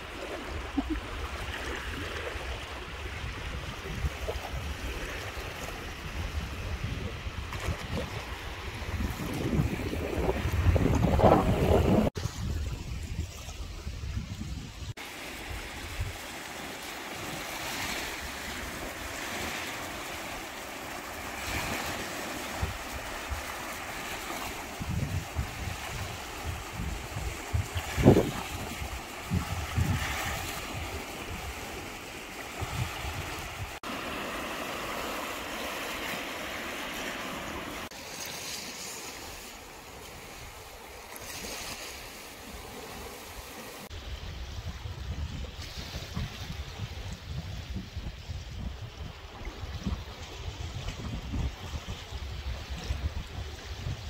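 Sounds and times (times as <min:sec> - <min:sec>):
waves on pebbly beach: 0:00.0 - 0:13.6, 0:14.9 - 0:46.9
wind buffeting microphone: 0:00.0 - 0:16.4, 0:21.3 - 0:35.8, 0:42.5 - 0:54.0.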